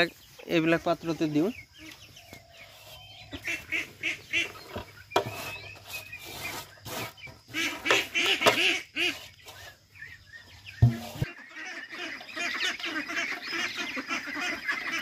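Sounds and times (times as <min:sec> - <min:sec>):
ducks quacking: 0:03.3 - 0:04.7, 0:07.5 - 0:09.7, 0:10.8 - 0:15.0
sharp knock: 0:10.8 - 0:11.3.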